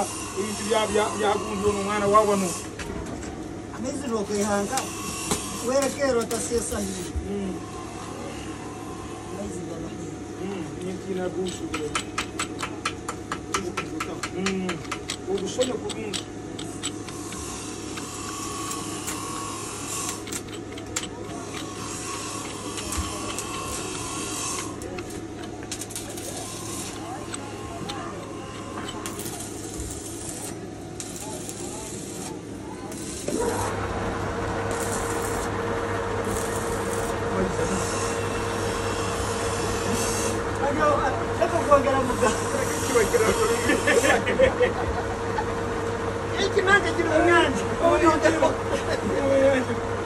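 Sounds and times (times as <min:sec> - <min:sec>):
machine hum: 0:07.5 - 0:50.0
threading die scraping: 0:14.4 - 0:33.8.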